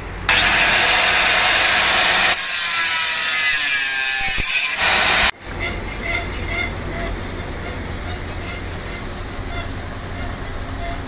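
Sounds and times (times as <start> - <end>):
angle grinder cutting metal: 0.3 - 7.2.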